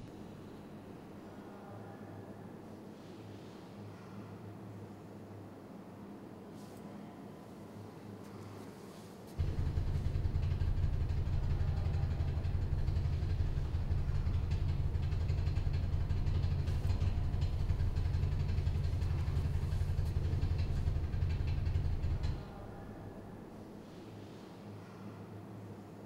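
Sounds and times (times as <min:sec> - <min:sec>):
low-pitched drone: 0:09.4 - 0:23.4.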